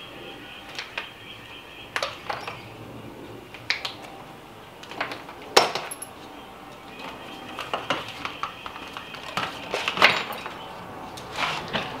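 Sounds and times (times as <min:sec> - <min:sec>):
metal tools clinking on workbench: 0:09.2 - 0:10.6.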